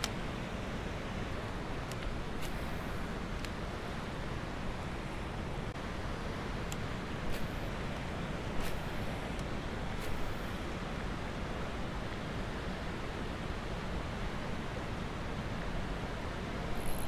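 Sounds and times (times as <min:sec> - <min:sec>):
faint clicks: 0:03.3 - 0:03.6.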